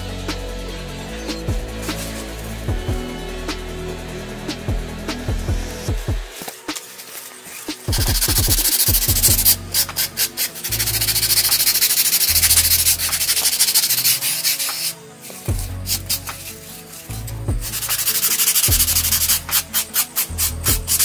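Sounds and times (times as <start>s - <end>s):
background music: 0.0s - 21.0s
hand sanding with sandpaper: 1.3s - 2.6s, 6.3s - 21.0s.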